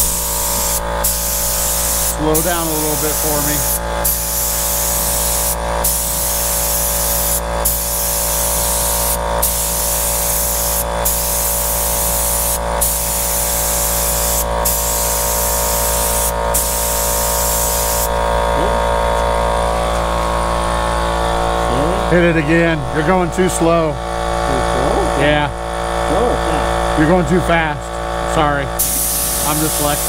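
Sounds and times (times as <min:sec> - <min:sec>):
paint spray gun hissing: 0:00.0 - 0:18.3, 0:28.8 - 0:30.0
steady hum: 0:00.0 - 0:30.0.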